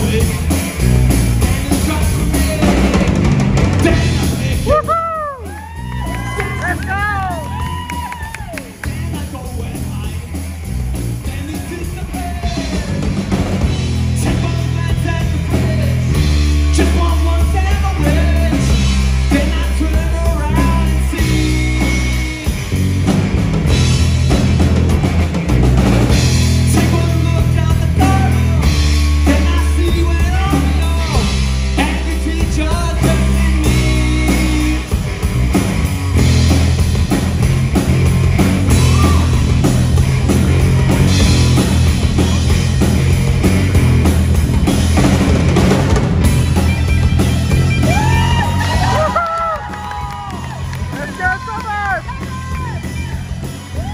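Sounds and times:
drum kit: 0.0s - 53.9s
guitar: 0.0s - 53.9s
heavy bass notes: 0.0s - 53.9s
person singing: 14.1s - 22.7s, 26.6s - 35.1s.

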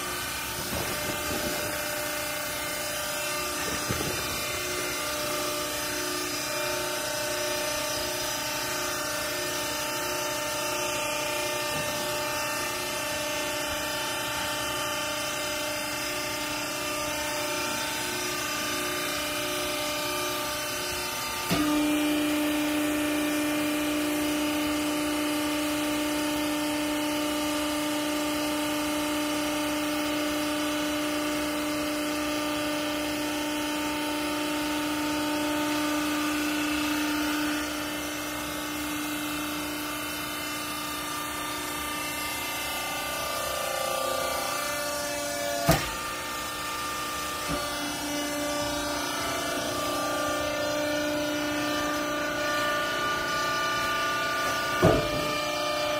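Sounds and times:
hydraulic power unit humming: 0.0s - 55.9s
hydraulic ram pressing: 51.8s - 55.9s.

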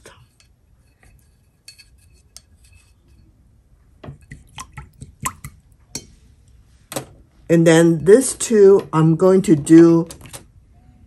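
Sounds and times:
paint mixing clicks and taps: 0.0s - 6.6s.

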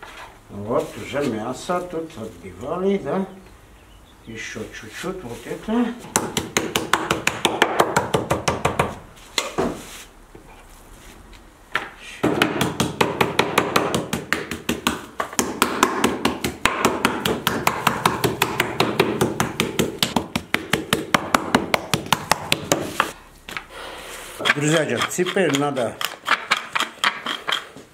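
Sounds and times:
wooden mallet pounding meat: 6.1s - 8.9s, 12.2s - 23.1s.

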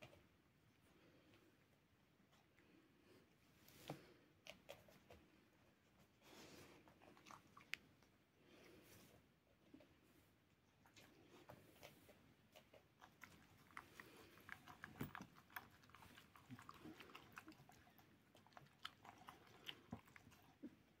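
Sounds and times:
animals chewing wet food: 6.2s - 8.7s, 10.7s - 21.0s.

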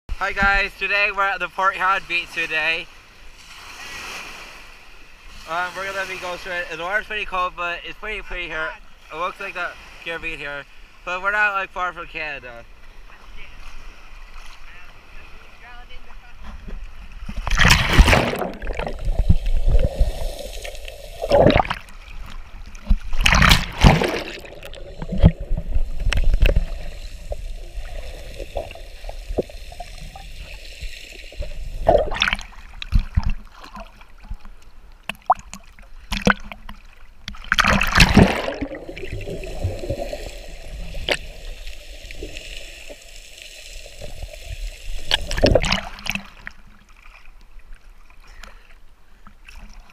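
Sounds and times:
water splashing: 11.1s - 48.6s.

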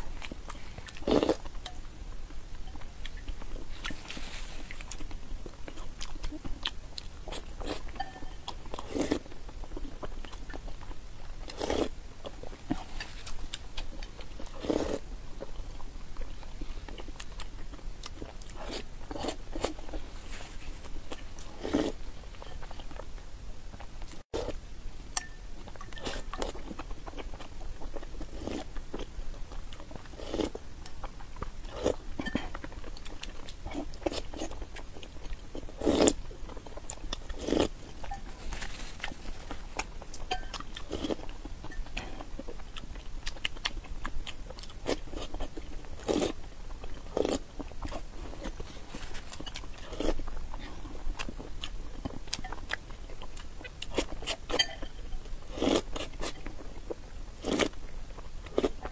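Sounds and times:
wet chewing: 25.2s - 58.9s.

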